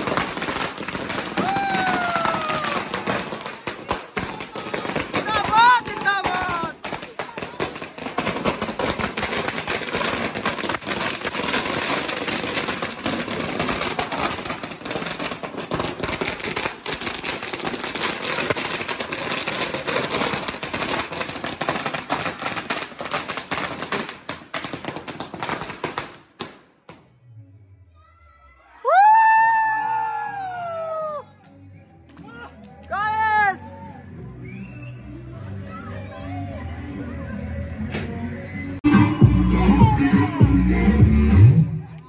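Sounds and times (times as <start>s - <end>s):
string of firecrackers crackling: 0.0s - 27.1s.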